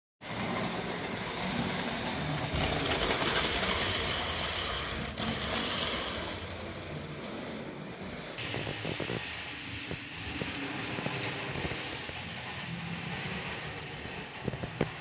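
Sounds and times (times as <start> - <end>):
model locomotive motor: 0.2 - 15.0
train wheels clicking on rails: 0.2 - 15.0.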